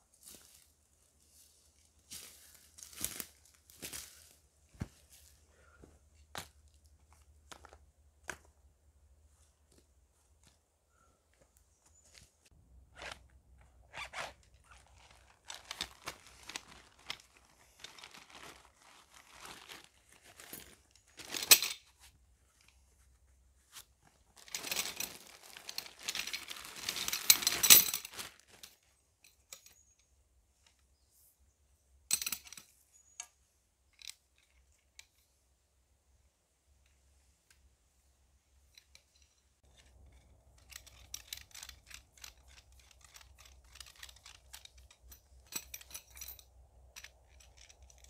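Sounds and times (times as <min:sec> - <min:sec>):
material rustling and tearing: 0:13.9 - 0:21.5, 0:23.7 - 0:28.7.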